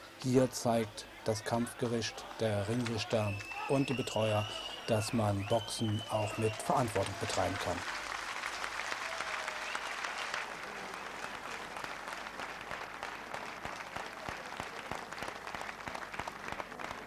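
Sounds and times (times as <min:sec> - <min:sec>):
crowd applauding: 0:00.0 - 0:17.0.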